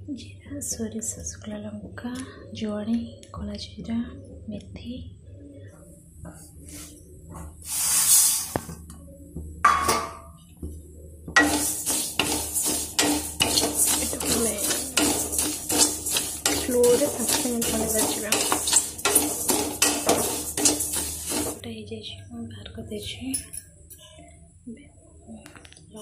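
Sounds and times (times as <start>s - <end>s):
seeds rattling against metal: 11.4s - 21.6s
wooden spatula scraping metal pan: 11.4s - 21.6s.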